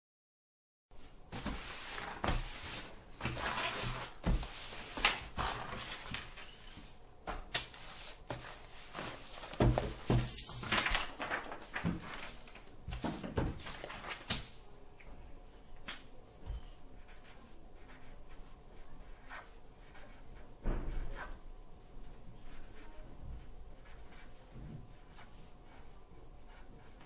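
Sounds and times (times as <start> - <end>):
paper rustling and sliding: 1.3 - 14.6
books thudding on desk: 9.4 - 10.9.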